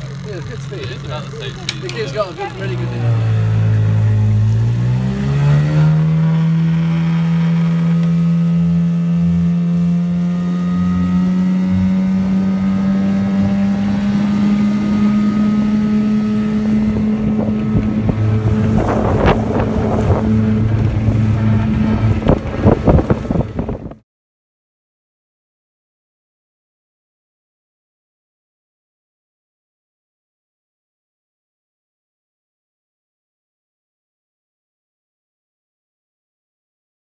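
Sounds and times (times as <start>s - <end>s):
outboard motor running: 0.0s - 24.0s
wind buffeting microphone: 13.6s - 24.0s.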